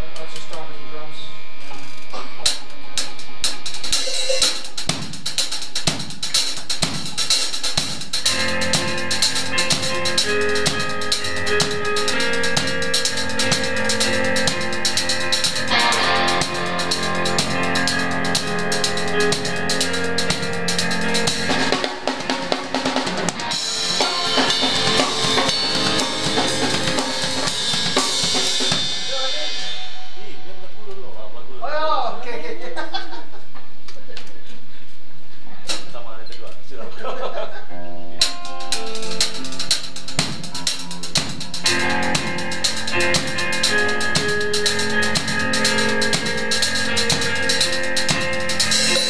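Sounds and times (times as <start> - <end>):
bass: 0.0 - 33.1, 35.3 - 49.0
drum kit: 1.8 - 31.2, 35.6 - 36.0, 38.2 - 49.0
electric keyboard: 6.0 - 29.4, 37.0 - 49.0
guitars: 8.1 - 31.2, 37.7 - 49.0.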